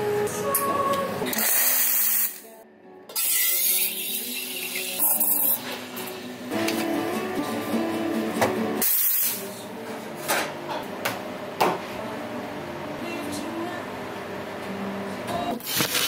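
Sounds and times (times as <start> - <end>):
steam wand hissing: 8.8 - 9.4.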